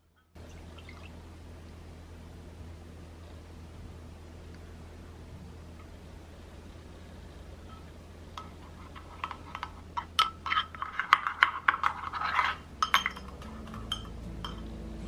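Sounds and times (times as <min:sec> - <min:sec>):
spoon clinking in gravy boat: 0:09.2 - 0:14.7.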